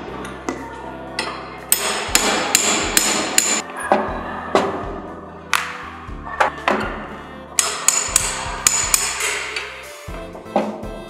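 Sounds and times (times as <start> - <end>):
hammer striking steel punch: 1.7 - 3.6, 7.6 - 9.7.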